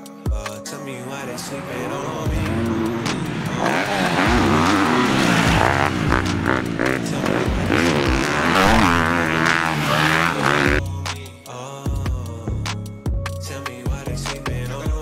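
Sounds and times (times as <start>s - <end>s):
dirt bike engine revving: 1.2s - 10.8s.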